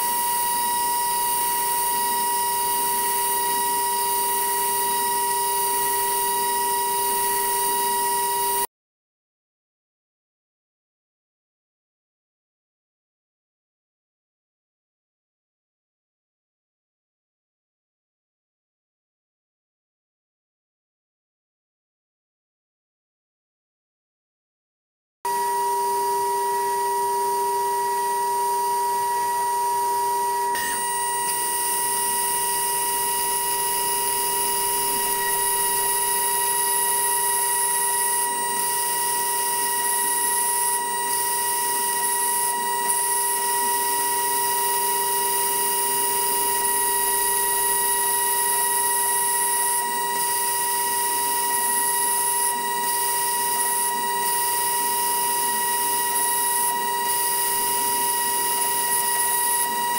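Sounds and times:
milling spindle high whine: 0:00.0 - 0:08.7, 0:25.3 - 0:59.9.

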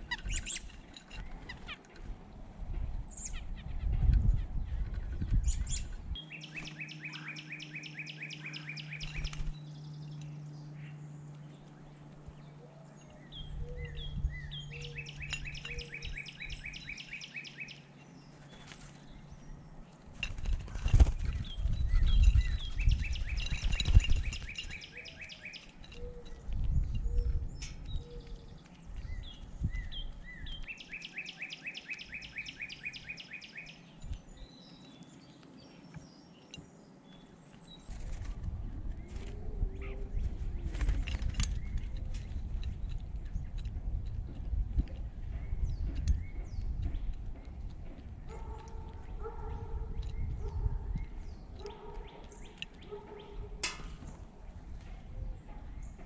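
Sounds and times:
bird chirps: 0:00.0 - 0:01.8, 0:04.8 - 0:38.1
bird trilling: 0:05.5 - 0:09.6, 0:13.4 - 0:17.9, 0:21.5 - 0:26.4
low thumps and rumbling: 0:39.7 - 0:51.4.

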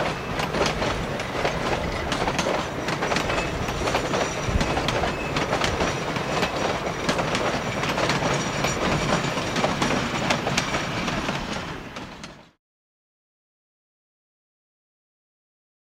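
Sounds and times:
train wheels clattering over rail joints: 0:00.0 - 0:12.6
high wheel squeal: 0:02.8 - 0:06.0.

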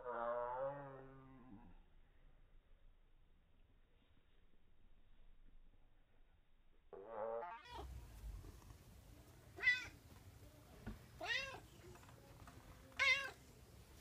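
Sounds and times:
cat meowing: 0:07.4 - 0:07.9, 0:09.6 - 0:10.0, 0:11.2 - 0:11.6, 0:13.0 - 0:13.4.

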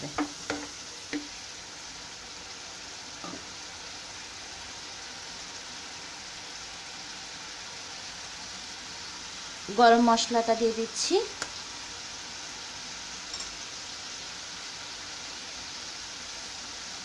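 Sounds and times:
food sizzling in a frying pan: 0:00.0 - 0:17.0.

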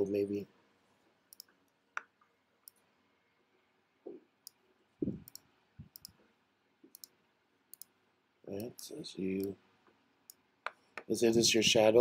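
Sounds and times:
computer mouse clicking: 0:01.3 - 0:02.8, 0:05.2 - 0:06.2, 0:06.9 - 0:07.9
soft low thumps: 0:05.0 - 0:06.0.

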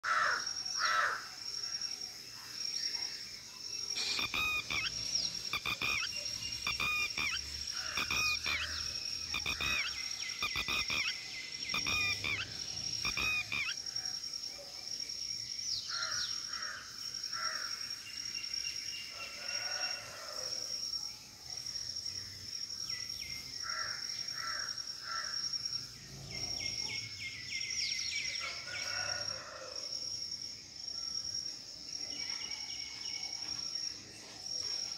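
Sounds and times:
high-pitched insect buzz: 0:03.7 - 0:14.2
lapwings calling: 0:04.0 - 0:13.8.

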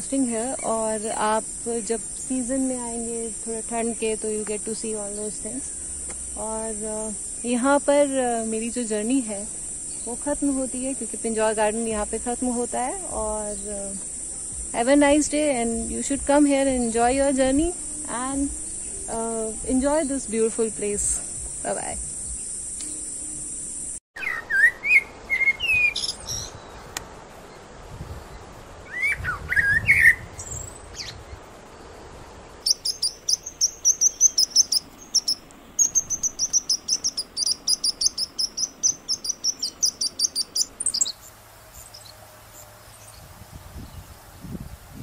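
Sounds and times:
rapid high bird chirps: 0:21.2 - 0:26.9, 0:32.5 - 0:43.2
birds whistling sliding calls: 0:24.2 - 0:26.7, 0:28.9 - 0:31.2, 0:32.6 - 0:43.2.

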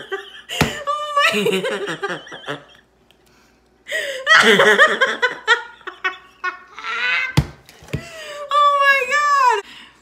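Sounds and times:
person laughing: 0:00.0 - 0:03.0, 0:03.9 - 0:07.3.

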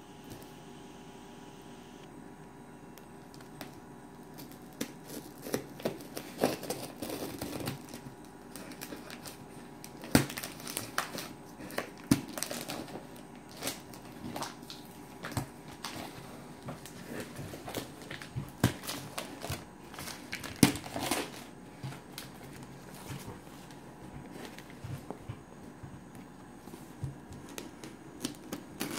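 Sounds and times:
plastic wrap crinkling: 0:03.2 - 0:28.9
packing tape tearing: 0:04.3 - 0:16.2, 0:16.8 - 0:23.3, 0:27.5 - 0:28.9.

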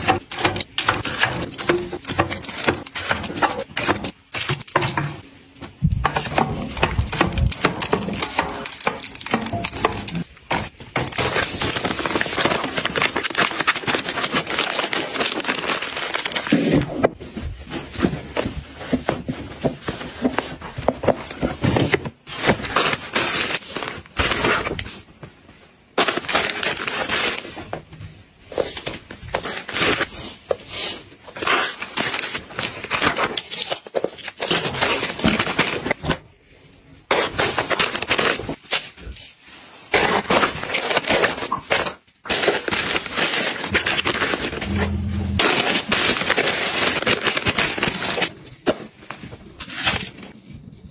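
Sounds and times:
plastic packaging crinkling: 0:06.0 - 0:25.1, 0:26.0 - 0:27.7, 0:31.2 - 0:36.1, 0:39.9 - 0:50.4.

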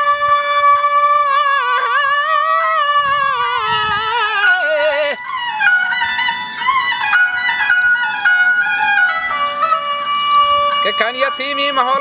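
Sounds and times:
man singing long wavering note: 0:00.0 - 0:06.1
bowed fiddle: 0:00.0 - 0:12.0
plucked lute: 0:00.7 - 0:12.0.

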